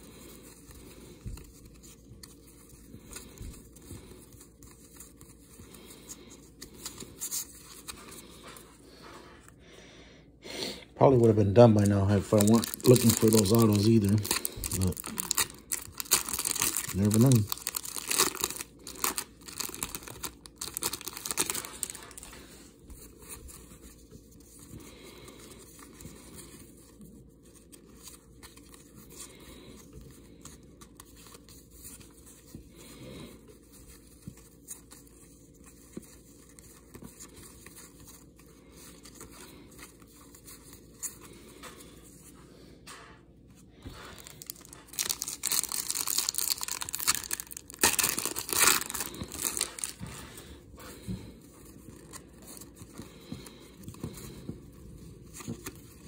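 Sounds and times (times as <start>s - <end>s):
cards being leafed through: 11.1s - 26.8s, 43.8s - 56.0s
card pack wrapper crinkling: 11.5s - 22.5s, 44.0s - 50.2s.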